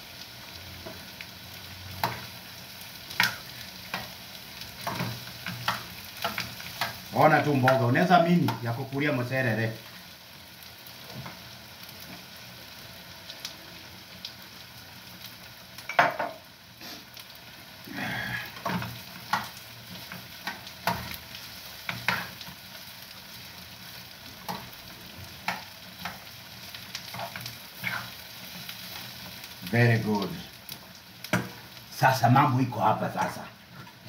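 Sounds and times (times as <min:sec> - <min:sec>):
sausages sizzling in a pan: 0:00.0 - 0:34.0
metal spoon scraping a pan: 0:27.1 - 0:28.2.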